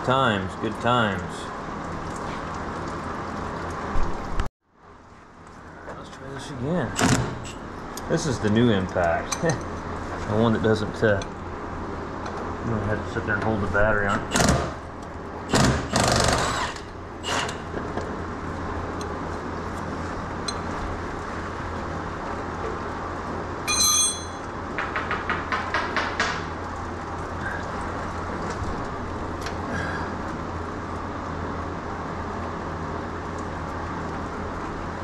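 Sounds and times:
impact wrench whine and rattling: 7.0s - 7.6s, 14.1s - 14.8s, 15.5s - 18.0s.

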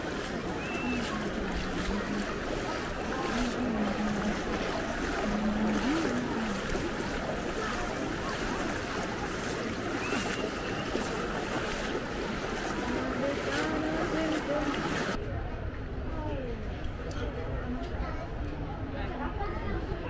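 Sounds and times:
bare feet splashing through water: 0.0s - 15.2s
steady wash of water: 0.0s - 15.2s
faint crowd voices: 0.0s - 20.0s.

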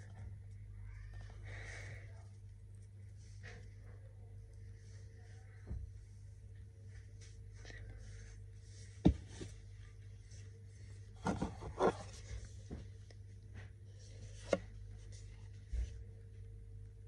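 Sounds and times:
low steady hum: 0.0s - 17.0s
soft scratching and rubbing: 2.7s - 16.0s.

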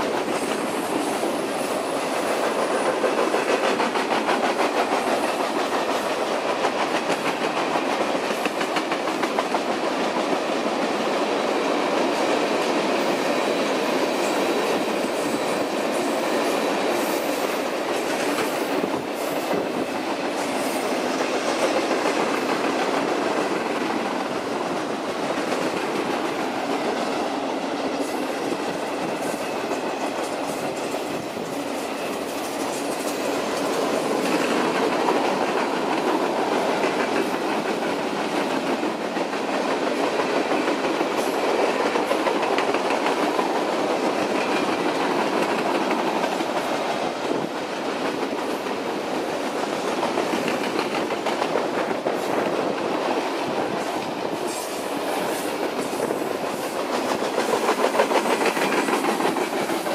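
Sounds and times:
freight train wheels rattling on rail: 0.0s - 59.9s
wheels clicking over track: 17.3s - 59.9s.

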